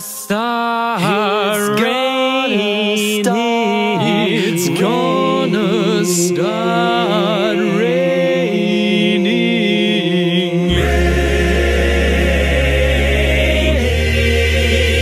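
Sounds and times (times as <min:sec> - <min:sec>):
men singing close harmony: 0:00.1 - 0:15.0
deep steady bass note: 0:10.7 - 0:15.0.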